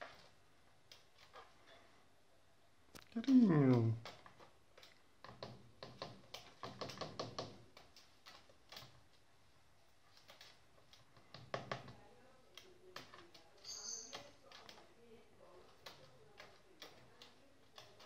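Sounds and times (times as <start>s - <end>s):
parrot tapping on plastic cage: 5.2s - 7.6s.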